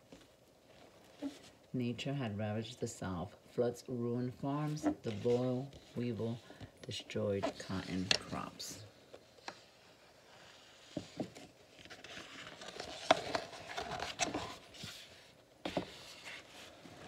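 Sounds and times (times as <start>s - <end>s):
book pages rustling: 4.5s - 17.0s.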